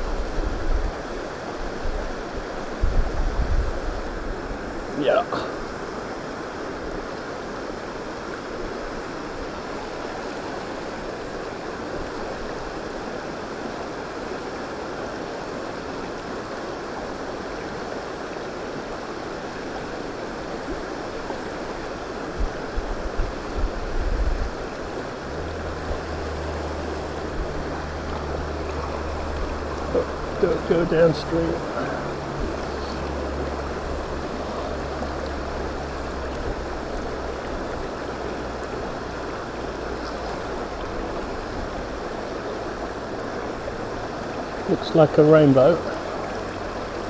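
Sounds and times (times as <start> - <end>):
water flowing over stones: 0.0 - 47.0
low steady hum: 20.6 - 47.0
low bumps: 25.2 - 44.6.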